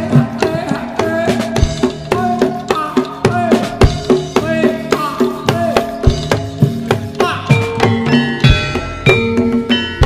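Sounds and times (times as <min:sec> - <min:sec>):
busy drumming: 0:00.0 - 0:10.0
drum-kit hits: 0:00.0 - 0:10.0.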